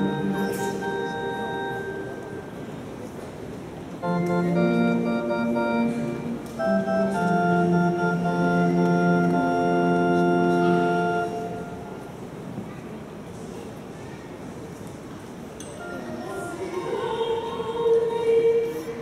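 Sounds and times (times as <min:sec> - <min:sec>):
electric organ chords: 0:00.0 - 0:02.8, 0:04.0 - 0:12.2.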